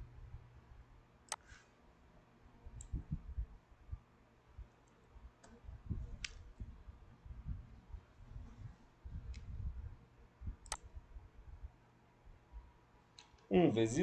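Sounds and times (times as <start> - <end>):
computer mouse clicks: 2.8 - 3.0, 10.6 - 10.9.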